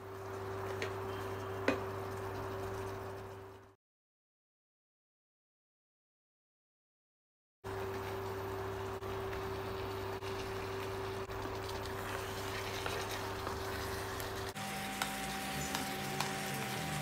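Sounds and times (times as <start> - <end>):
sauce simmering while stirred: 0.0 - 3.8, 7.7 - 17.0
electrical hum: 7.7 - 17.0.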